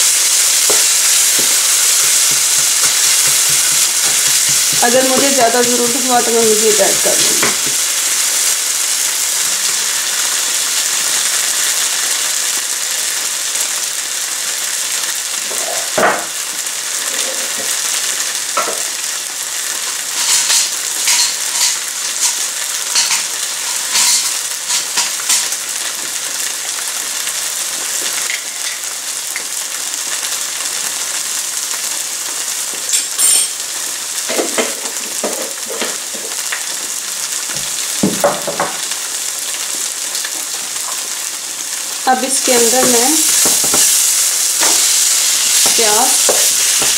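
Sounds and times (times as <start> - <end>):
oil sizzling in a frying pan: 0.0 - 46.9
knock: 37.6 - 38.8.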